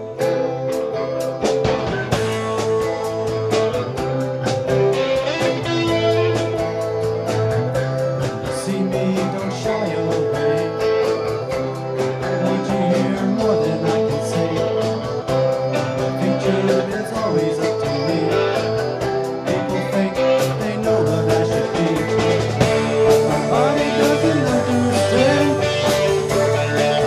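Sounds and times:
country-rock song: 0.0 - 27.0
man singing: 8.2 - 27.0.

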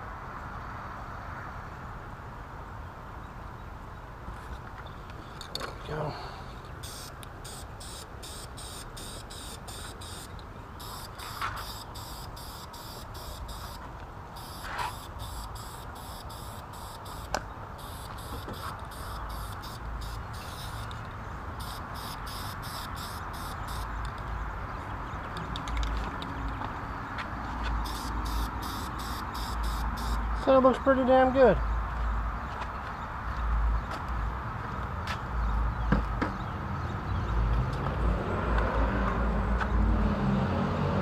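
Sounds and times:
aerosol spray hiss: 6.8 - 13.8, 14.4 - 20.9, 21.6 - 23.9, 27.8 - 30.2
spray can ticking rattle: 6.8 - 13.8, 14.4 - 21.0, 21.6 - 24.2, 27.8 - 30.2.

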